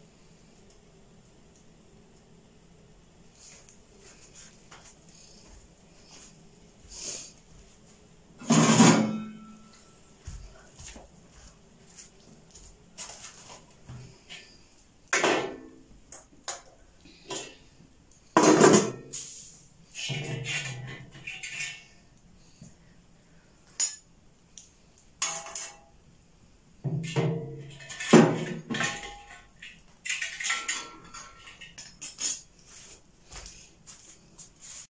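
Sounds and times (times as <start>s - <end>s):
metal cookware clattering: 8.4s - 9.7s, 18.4s - 19.1s, 20.0s - 22.0s, 25.2s - 25.9s, 26.9s - 32.5s.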